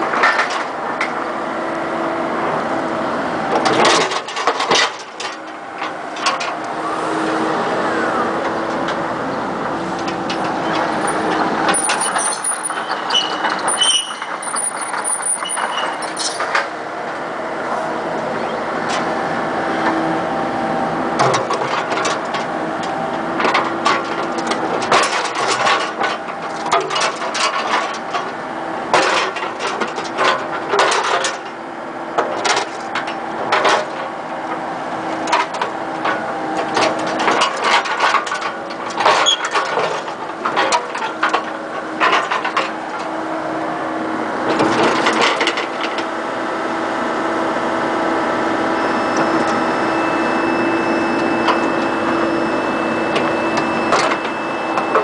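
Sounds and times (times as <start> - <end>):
excavator engine humming: 0.0 - 55.0
high hydraulic squeaks: 10.6 - 16.5, 39.2 - 39.6.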